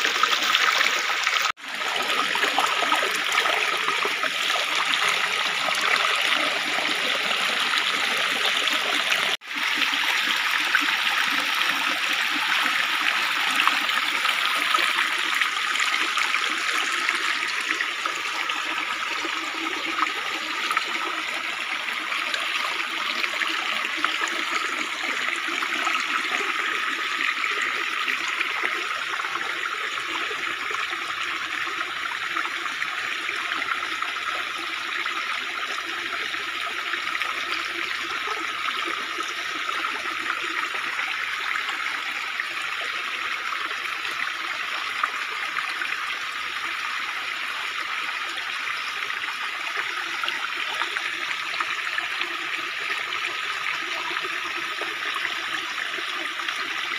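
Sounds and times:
stream water trickling over rocks: 0:00.0 - 0:56.9.

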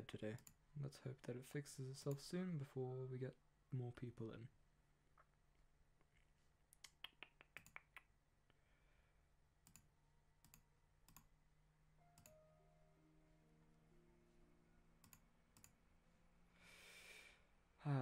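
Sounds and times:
computer mouse clicks: 0:06.8 - 0:08.0, 0:09.6 - 0:11.3, 0:12.2 - 0:12.4, 0:15.0 - 0:15.8
low steady hum: 0:08.5 - 0:16.7.

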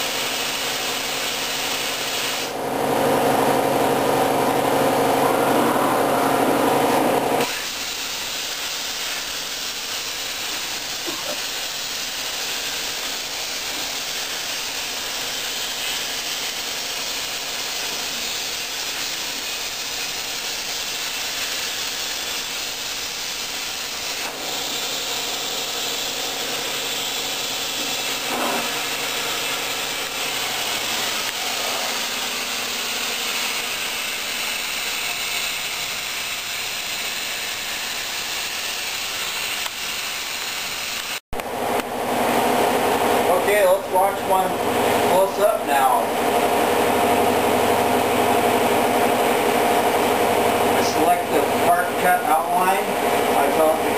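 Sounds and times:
plasma torch hissing: 0:00.0 - 0:02.6, 0:06.8 - 0:41.2, 0:48.6 - 0:53.9
loud steady tones: 0:02.5 - 0:41.0.

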